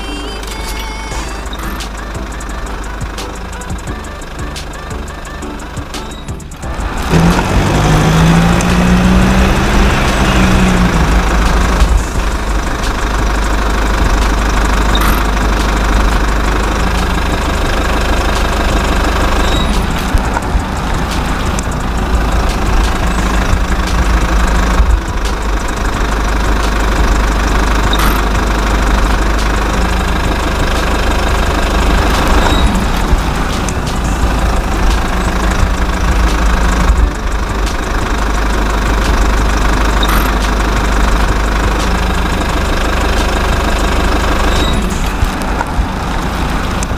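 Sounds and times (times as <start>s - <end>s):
short pitched tone: 0.0s - 7.5s, 14.9s - 15.9s, 31.4s - 33.4s, 39.3s - 40.6s
engine running with rough knocking: 0.0s - 46.9s.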